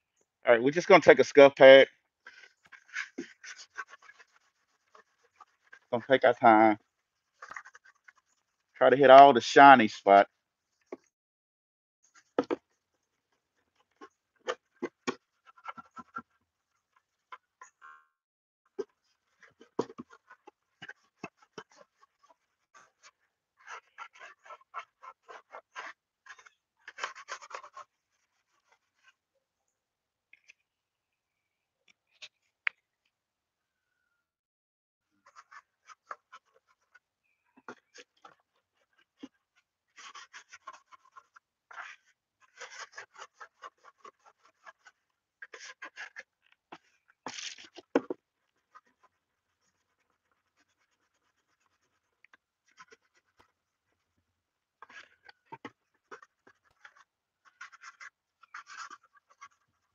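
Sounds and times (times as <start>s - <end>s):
scuff pad scrubbing plastic: 2.3s - 8.8s, 18.8s - 29.2s, 37.6s - 54.1s.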